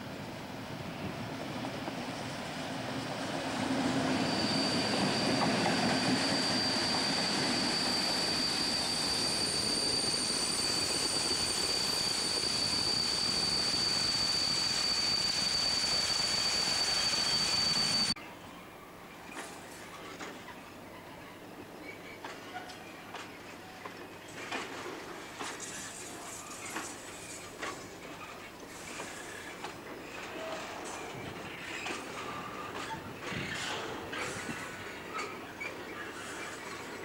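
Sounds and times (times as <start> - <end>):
freight train rolling past: 0.0 - 37.0
high-pitched wheel squeal: 3.5 - 18.2, 28.8 - 37.0.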